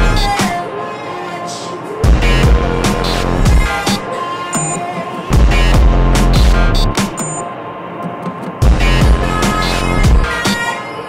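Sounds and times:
deep bass note: 2.0s - 3.7s, 5.3s - 7.0s, 8.6s - 10.2s.

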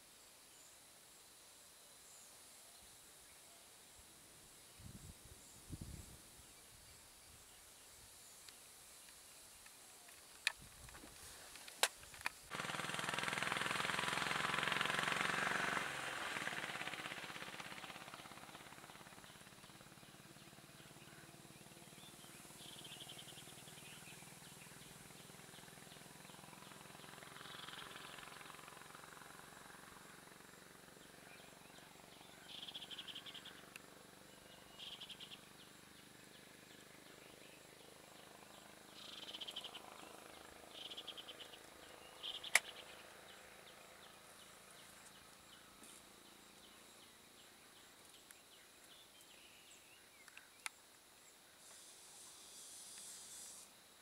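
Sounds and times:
high insect hum: 0.0s - 54.0s
sharp click: 42.4s - 42.8s.

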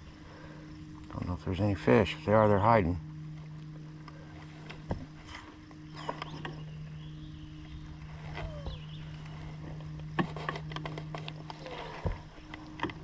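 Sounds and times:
boat motor humming: 0.0s - 13.0s.

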